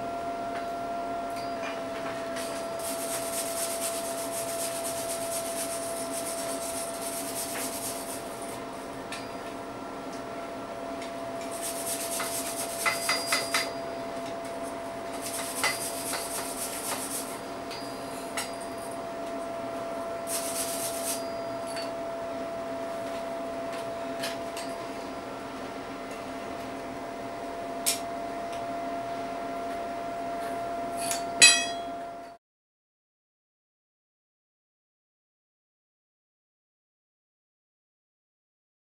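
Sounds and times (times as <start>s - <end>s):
steady hum: 0.0s - 32.4s
wire brush scraping steel: 2.4s - 8.4s, 11.4s - 13.6s, 15.2s - 17.4s, 20.3s - 21.4s.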